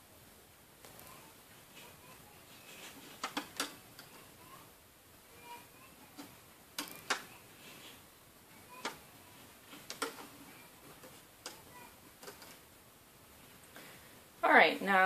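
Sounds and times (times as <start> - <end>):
rubber bands snapping onto pegs: 6.8 - 7.3.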